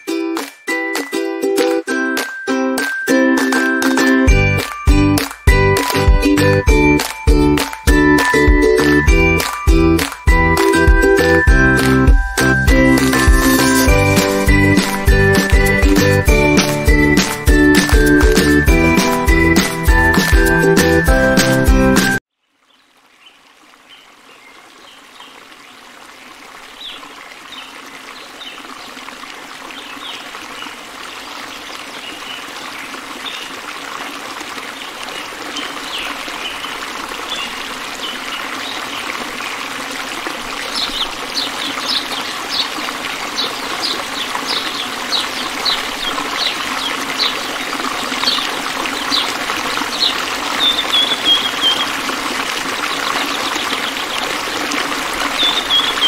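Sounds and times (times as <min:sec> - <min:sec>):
water drops plinking: 0:00.0 - 0:22.2
fountain water trickling: 0:00.0 - 0:56.0.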